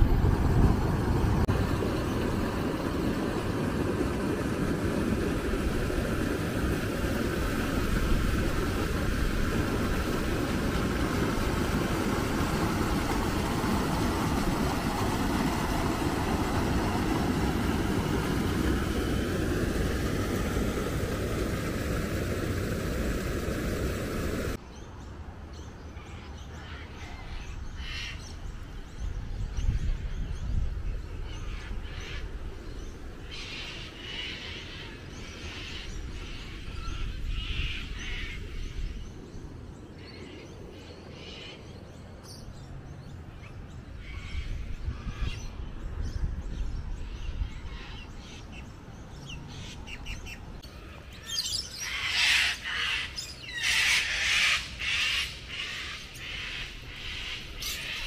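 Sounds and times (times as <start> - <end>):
floodwater rushing: 0.0 - 24.6, 49.8 - 58.0.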